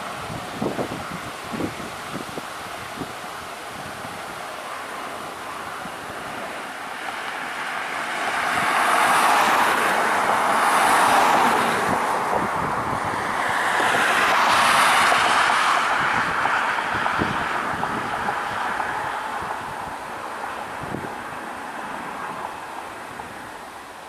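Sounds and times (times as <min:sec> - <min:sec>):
wind buffeting microphone: 0:00.0 - 0:23.8
jet engines roaring at takeoff: 0:00.0 - 0:24.0.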